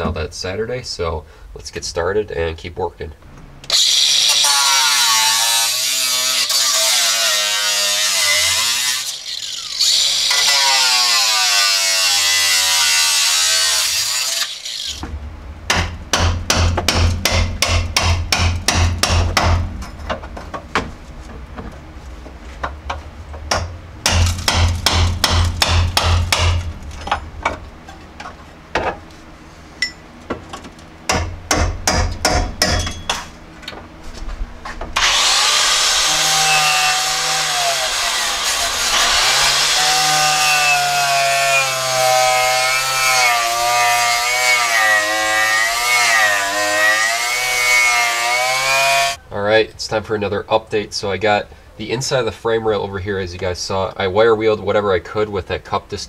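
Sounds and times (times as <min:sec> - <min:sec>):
wire brush grinder whining on metal: 0:03.7 - 0:15.0, 0:35.0 - 0:49.2.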